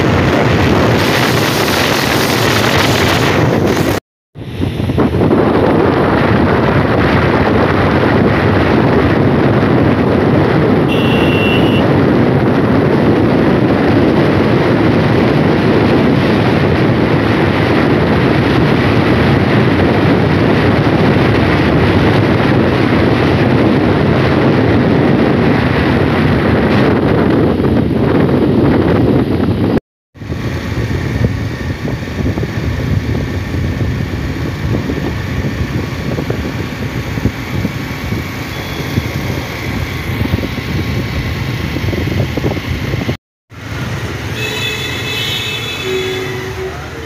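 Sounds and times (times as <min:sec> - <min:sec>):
wind buffeting microphone: 0:00.0 - 0:47.0
brief high tone: 0:10.9 - 0:12.0, 0:38.4 - 0:40.1, 0:44.3 - 0:47.0.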